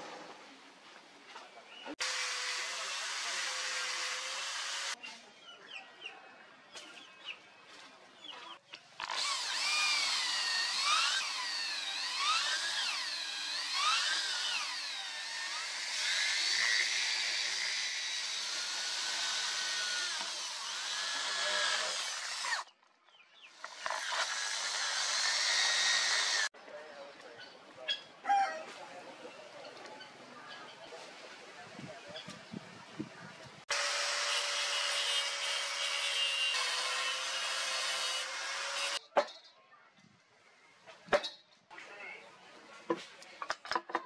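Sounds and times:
angle grinder on steel: 2.0 - 5.0, 9.0 - 22.7, 23.6 - 26.5, 33.7 - 39.0
electric drill boring into wood: 2.0 - 5.0, 9.0 - 22.7, 23.6 - 26.5, 33.7 - 39.0.

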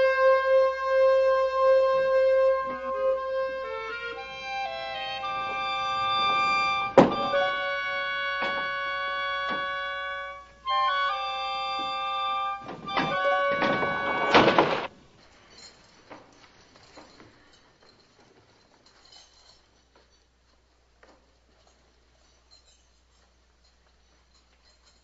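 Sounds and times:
held woodwind chords: 0.0 - 14.9
sharp wooden knocks: 7.0 - 7.5, 12.6 - 14.9.

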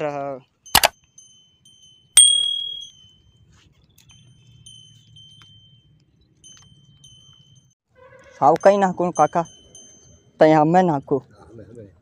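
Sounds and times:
small metal bell ringing: 0.0 - 7.8, 8.5 - 11.3.

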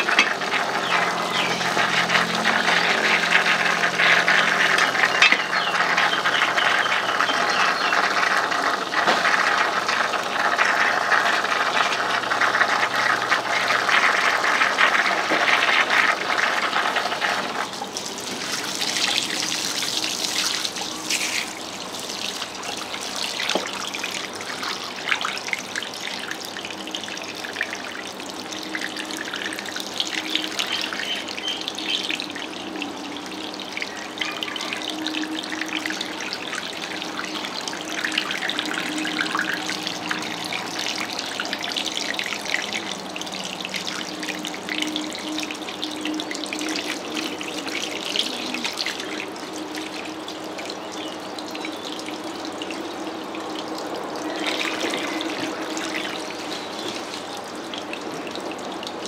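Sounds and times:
loud droning sound: 0.0 - 15.4
tap water splashing in sink: 0.0 - 42.9.

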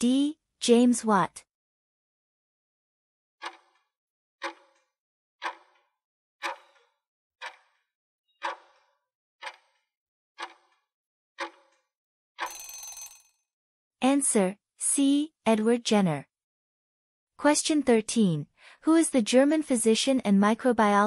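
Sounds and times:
clock ticking: 3.4 - 3.7, 4.4 - 4.7, 5.4 - 5.8, 6.4 - 7.8, 8.4 - 8.8, 9.4 - 9.7, 10.4 - 10.6, 11.4 - 11.6.

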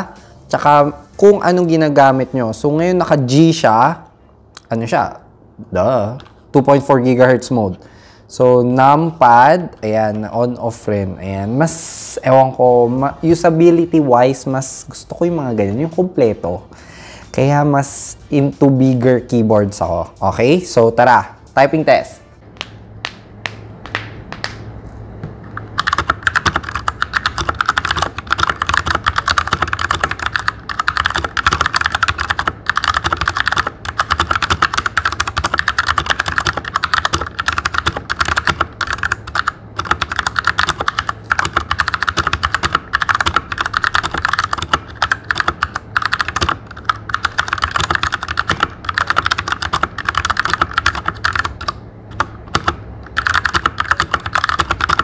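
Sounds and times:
mechanical keyboard typing: 25.7 - 55.0.

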